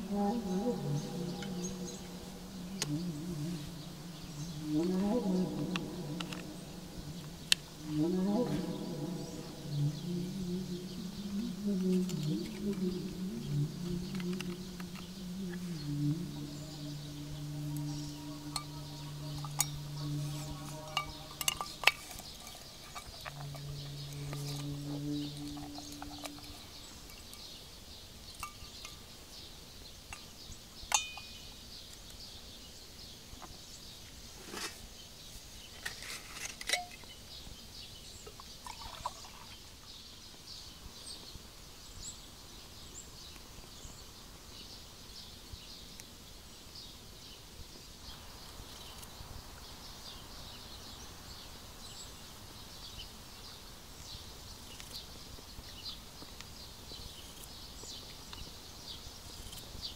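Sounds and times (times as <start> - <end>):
small birds chirping: 0.0 - 59.9
metallic clink with ring: 30.9 - 31.4.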